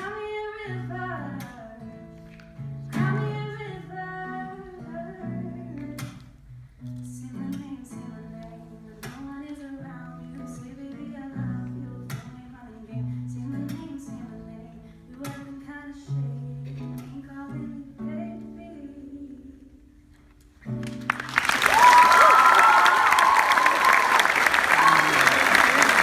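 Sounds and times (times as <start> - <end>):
girl singing: 0.0 - 2.1, 2.9 - 6.4, 7.0 - 20.0
audience applause: 20.8 - 26.0.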